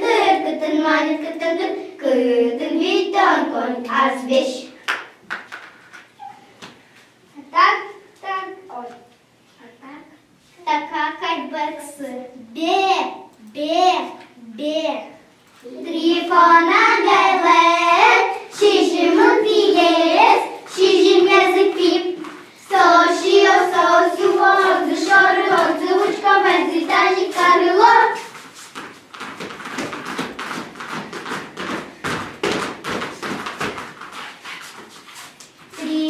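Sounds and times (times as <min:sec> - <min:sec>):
clatter of feet and hands: 0:04.9 - 0:06.8, 0:28.2 - 0:35.9
children singing in unison: 0:15.8 - 0:28.3.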